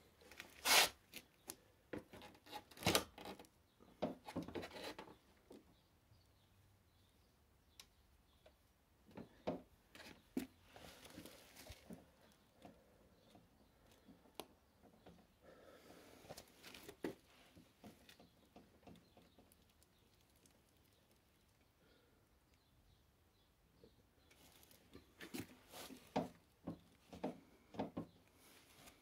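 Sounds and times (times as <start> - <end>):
rustling or scraping: 0.2 - 1.3, 24.3 - 26.3.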